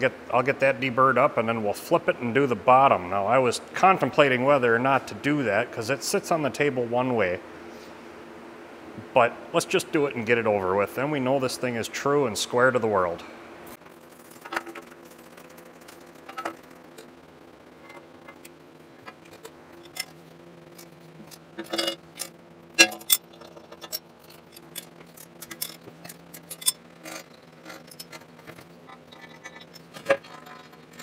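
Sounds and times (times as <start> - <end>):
steady machine hum: 0.0 - 31.0
hand tools clinking on steel: 20.8 - 28.3.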